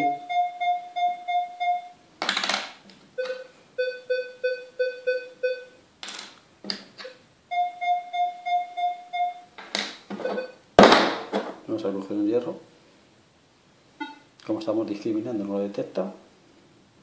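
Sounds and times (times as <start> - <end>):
metal detector beeps: 0.0 - 2.0, 3.2 - 5.8, 7.0 - 9.5, 10.2 - 10.6, 14.0 - 14.3.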